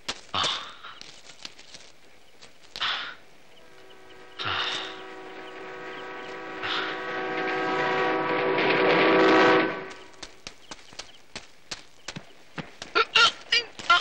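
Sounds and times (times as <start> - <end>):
locomotive horn blast: 3.6 - 10.0.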